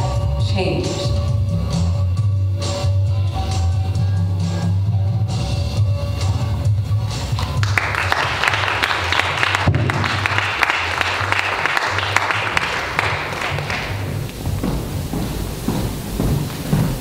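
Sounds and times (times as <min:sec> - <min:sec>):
music with low bass tone: 0:00.0 - 0:07.6
audience applause: 0:07.4 - 0:14.6.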